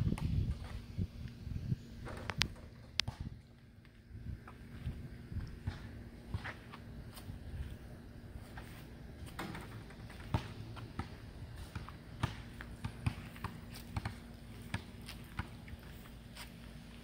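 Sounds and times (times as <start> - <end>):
faint steady hum: 0.0 - 17.0
footsteps on pavement: 3.0 - 9.4, 10.0 - 17.0.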